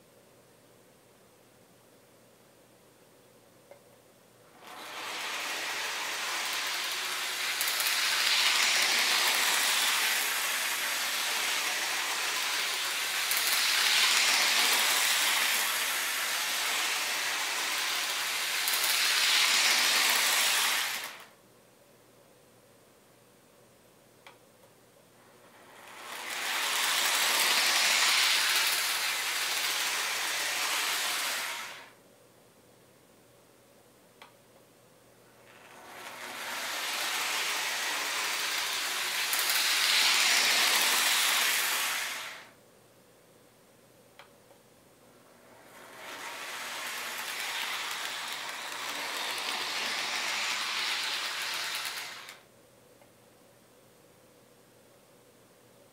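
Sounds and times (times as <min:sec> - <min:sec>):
model train motor and wheels: 0:04.5 - 0:21.4, 0:25.2 - 0:32.0, 0:35.3 - 0:42.6, 0:45.3 - 0:52.5
rail clicks: 0:04.7 - 0:21.2, 0:25.9 - 0:31.4, 0:35.5 - 0:41.9, 0:45.7 - 0:52.4.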